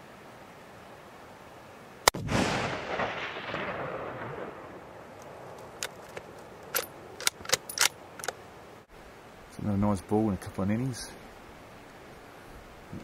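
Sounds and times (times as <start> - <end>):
rifle shot echoing: 2.1 - 4.9.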